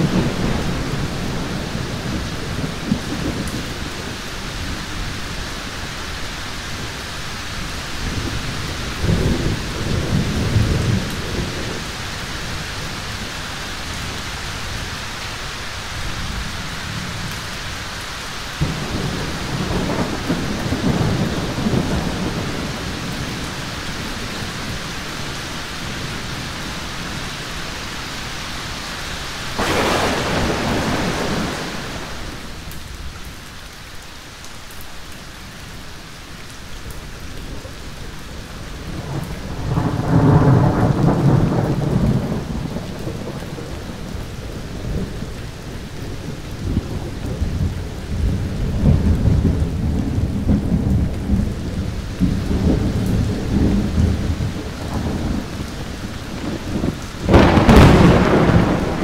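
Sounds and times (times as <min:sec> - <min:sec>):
steady rain: 0:00.0 - 0:59.0
thunder rolling: 0:18.6 - 0:25.2, 0:29.5 - 0:32.6, 0:46.3 - 0:59.0.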